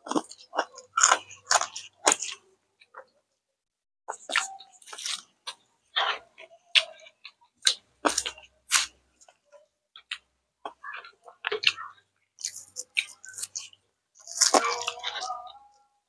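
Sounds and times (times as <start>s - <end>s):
wet chewing and lip smacks: 4.1s - 15.6s.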